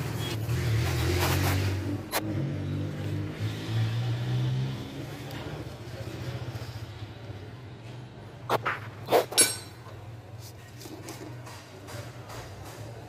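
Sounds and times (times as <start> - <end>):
ratchet clinking on metal cap: 9.3 - 9.9.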